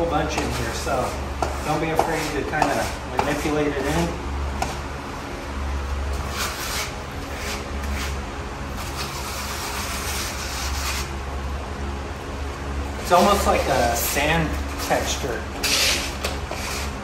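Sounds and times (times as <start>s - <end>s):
grout float scraping tiles: 14.8s - 17.0s.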